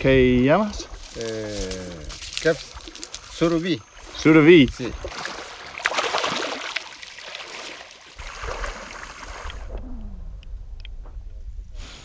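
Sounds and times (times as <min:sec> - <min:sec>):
river water splashing: 0:00.8 - 0:09.7.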